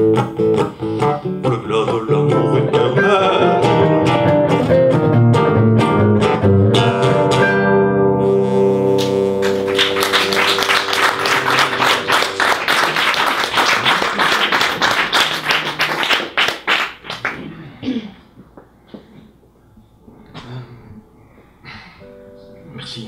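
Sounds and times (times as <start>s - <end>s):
guitar chord ringing out: 6.6s - 12.6s
audience applause: 9.4s - 17.4s.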